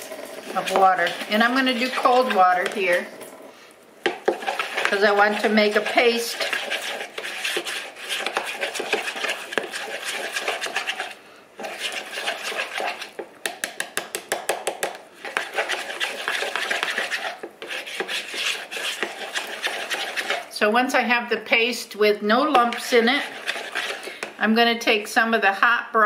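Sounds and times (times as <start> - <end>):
wire whisk scraping plastic bowl: 0.0 - 3.3, 4.0 - 13.2, 15.2 - 20.6, 22.6 - 24.3.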